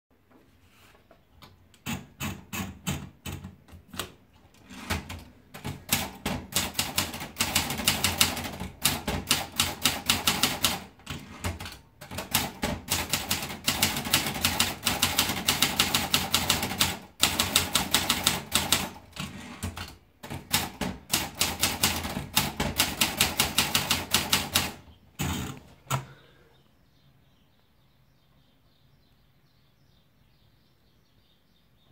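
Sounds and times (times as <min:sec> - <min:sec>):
typewriter keys clacking: 0:04.7 - 0:25.3.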